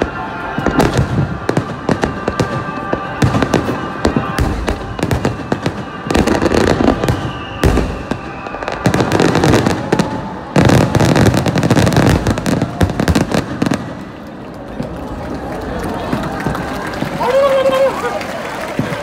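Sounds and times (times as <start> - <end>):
firework crackling: 0.0 - 19.0
firework booms: 0.6 - 14.0.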